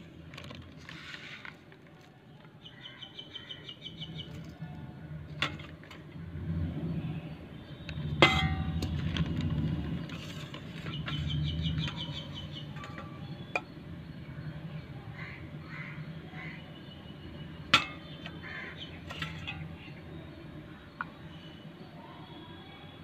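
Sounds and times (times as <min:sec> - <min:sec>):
metal clang: 0:08.1 - 0:09.0, 0:17.7 - 0:18.2.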